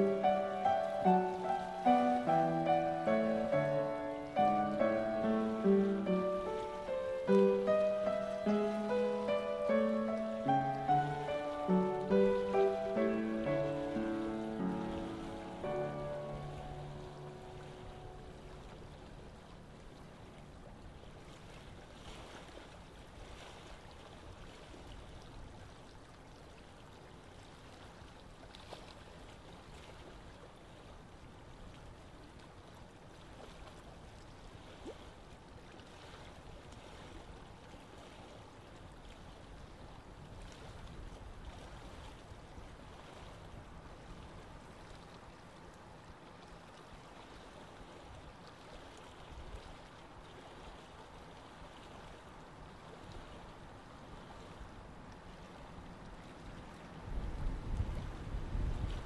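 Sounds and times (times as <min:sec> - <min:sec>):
faint outdoor ambience: 0:00.0 - 0:21.9.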